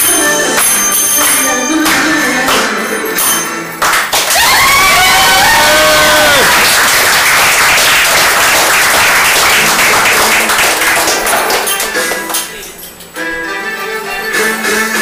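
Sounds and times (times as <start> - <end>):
audience applauding: 3.8 - 12.4.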